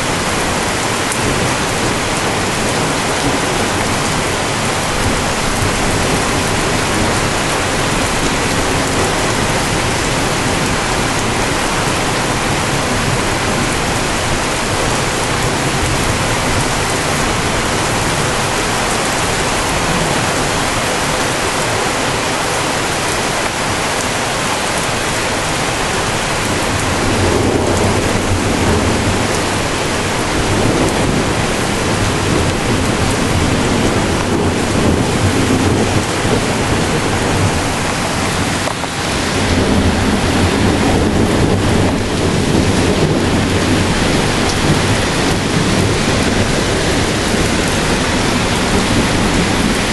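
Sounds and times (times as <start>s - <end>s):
steady rain: 0.0s - 49.9s
low rumble of thunder: 26.2s - 49.9s.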